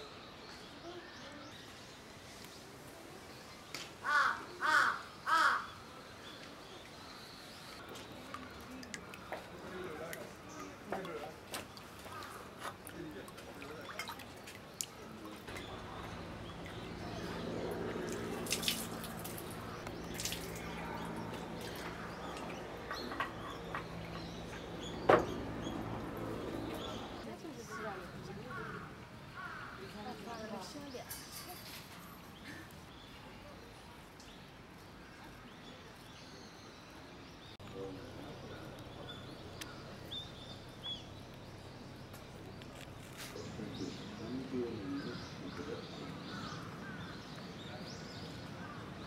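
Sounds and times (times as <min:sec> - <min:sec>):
birds chirping: 0:00.0 - 0:49.0
water splashing into stone basin: 0:07.8 - 0:26.2.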